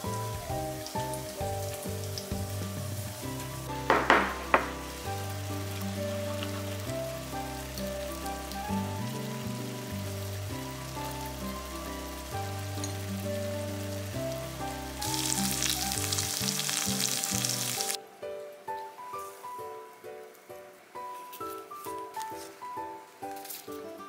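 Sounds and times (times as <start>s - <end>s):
meat sizzling in a frying pan: 0.0s - 18.0s
light background music: 0.0s - 24.0s.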